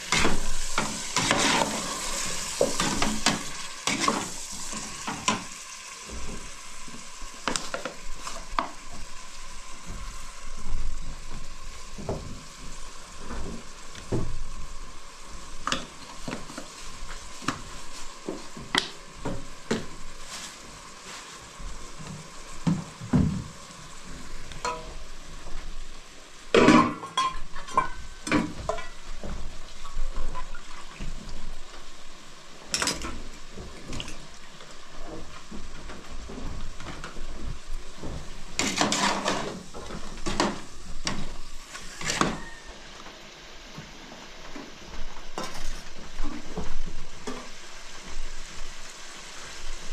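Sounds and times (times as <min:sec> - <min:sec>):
food sizzling in a pot: 0:00.0 - 0:49.9
metal dishes clinking: 0:24.6 - 0:25.0, 0:26.6 - 0:29.0.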